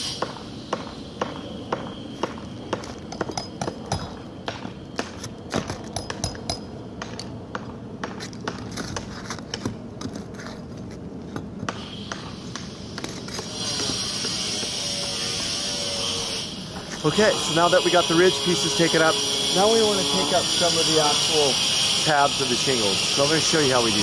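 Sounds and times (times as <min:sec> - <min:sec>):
pry bar scraping under shingles: 0:08.0 - 0:24.0.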